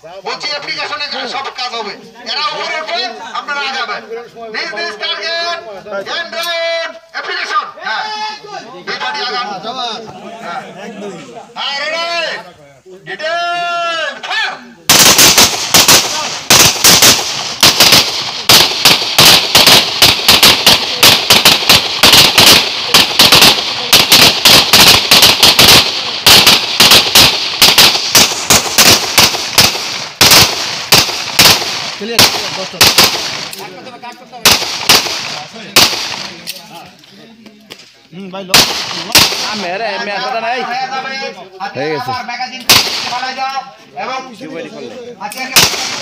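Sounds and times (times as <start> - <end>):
pistol shots: 14.9 - 33.6, 34.4 - 36.5, 38.5 - 39.7, 42.7 - 43.4, 45.5 - 46.0.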